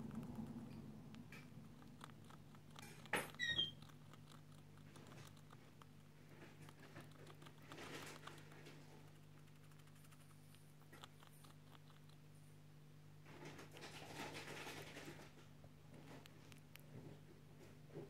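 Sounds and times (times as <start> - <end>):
faint low hum: 0.0 - 18.0
brief high squeak: 3.3 - 3.8
rats rustling in bedding: 4.8 - 9.2, 13.2 - 17.9.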